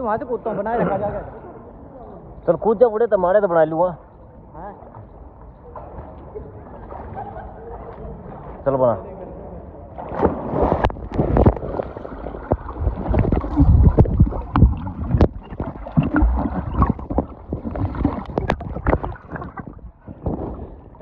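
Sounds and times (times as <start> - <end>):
splash into pool: 10.0 - 21.0
splashing at water surface: 10.0 - 21.0
underwater churning and bubbling: 10.4 - 21.0.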